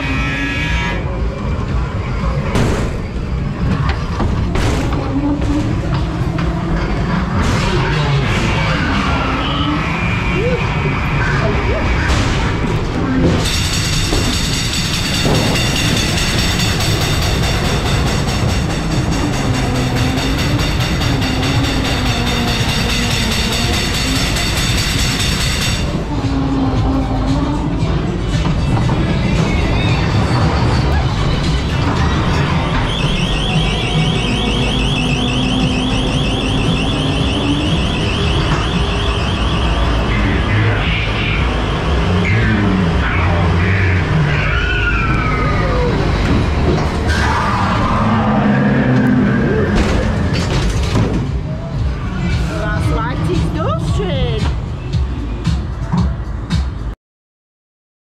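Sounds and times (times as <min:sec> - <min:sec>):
ride car wheels rumbling: 0:00.0 - 0:56.9
warbling electronic alarm: 0:13.4 - 0:25.9, 0:32.6 - 0:43.8
high-pitched rattle: 0:13.4 - 0:26.0.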